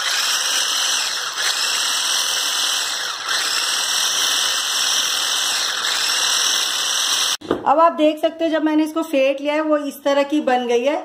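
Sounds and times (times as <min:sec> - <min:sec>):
electric hand blender whisking: 0:00.0 - 0:07.4.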